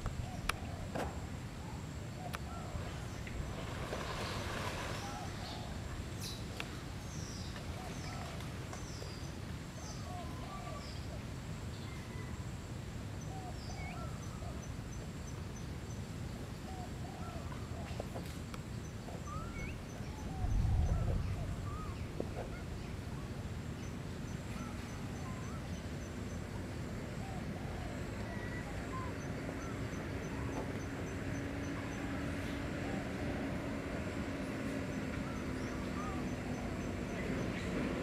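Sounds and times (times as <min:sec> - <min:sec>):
steady low rumble: 0:18.8 - 0:31.0.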